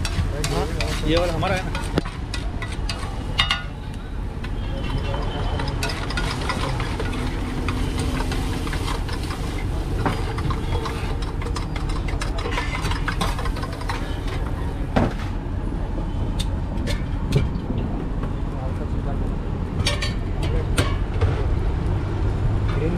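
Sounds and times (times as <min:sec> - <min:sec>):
metal spatula scraping griddle: 0:00.0 - 0:03.4, 0:04.7 - 0:14.5.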